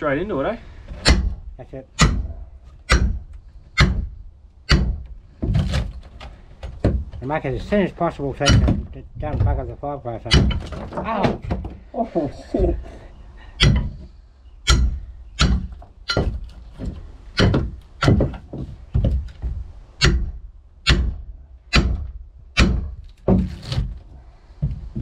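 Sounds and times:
hammer chipping wood: 2.0 - 7.8, 8.4 - 9.6, 10.2 - 11.8, 13.6 - 19.4, 20.0 - 24.0.

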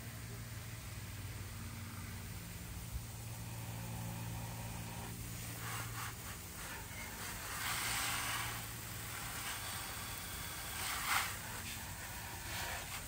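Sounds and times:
low engine-like hum: 0.0 - 13.0
hose nozzle water spurts: 4.6 - 13.0.

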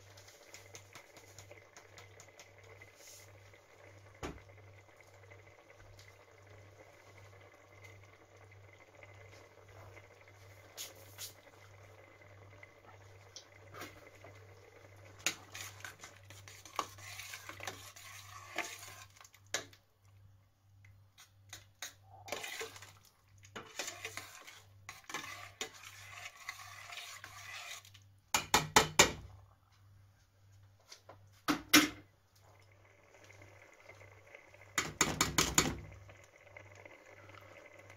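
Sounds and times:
faint simmering: 0.0 - 37.9
spoon stirring in steel pot: 12.4 - 19.8, 21.1 - 29.2, 34.7 - 35.9
spoon knocking against pot: 28.3 - 29.2.

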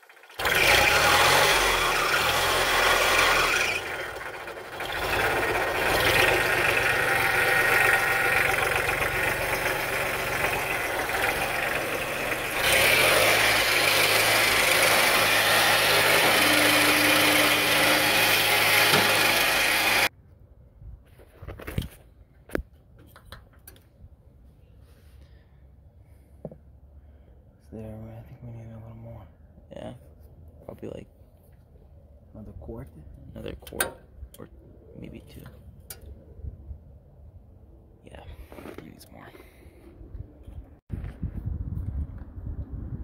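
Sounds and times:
tractor diesel engine running: 0.0 - 20.1.

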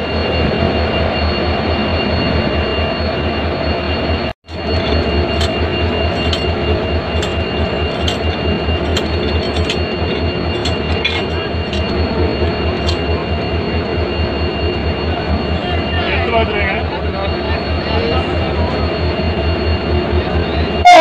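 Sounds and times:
diesel locomotive engine idling: 4.5 - 21.0
metal clinks of coupling gear: 7.2 - 12.0, 12.8 - 13.0.

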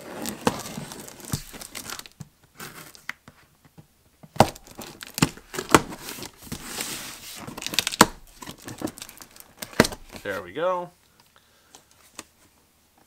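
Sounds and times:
tape and cardboard crinkling: 0.0 - 10.4.

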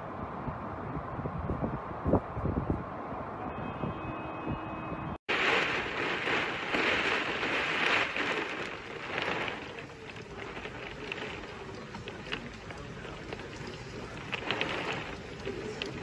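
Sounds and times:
torrential rain: 5.3 - 16.0.

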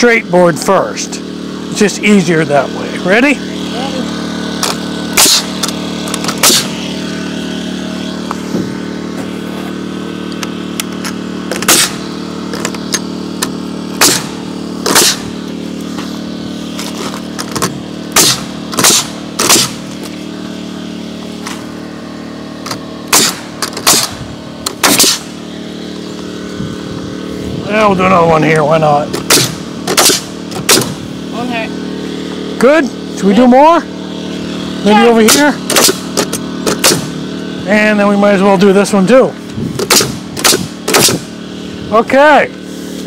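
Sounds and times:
machine hum: 0.0 - 43.0
nail gun shots: 4.6 - 6.8, 11.5 - 12.0, 13.4 - 15.3, 17.4 - 19.8, 22.6 - 25.3, 29.1 - 31.0, 35.2 - 37.2, 39.8 - 41.3.

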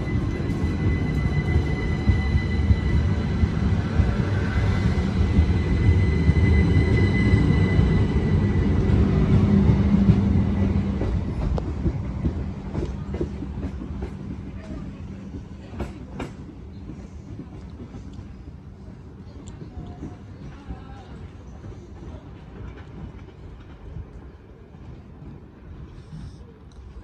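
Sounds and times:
train wheels rumbling on rail: 0.0 - 27.0.

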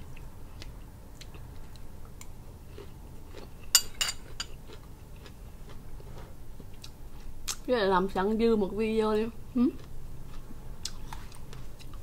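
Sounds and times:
soft eating sounds: 0.0 - 7.8, 9.1 - 12.0
metal spoon clinking on glass bowl: 3.7 - 4.5.

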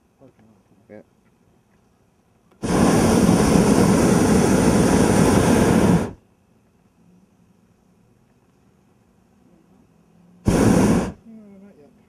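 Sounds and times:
propane burner blast: 2.5 - 6.2, 10.4 - 11.3.

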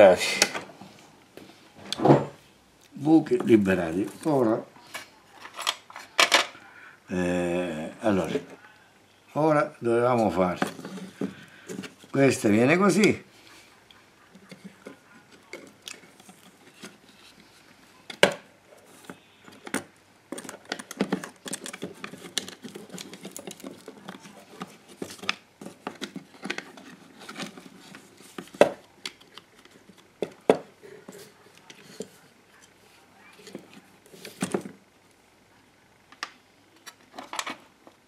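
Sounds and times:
plastic handling clicks and rustling: 13.9 - 32.8, 36.1 - 38.0.

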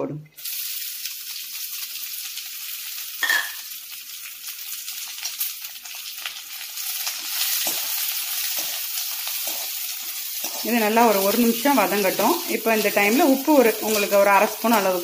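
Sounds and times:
onions sizzling in hot oil: 0.4 - 15.0
spoon stirring and scraping: 6.9 - 14.9.

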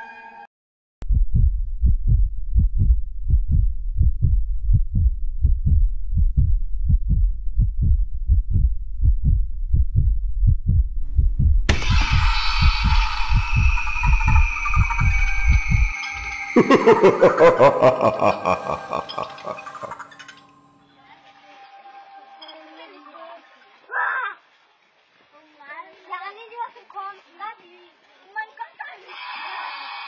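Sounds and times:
heartbeat thumps: 1.0 - 15.9
loud sound with held tones: 11.7 - 20.1.

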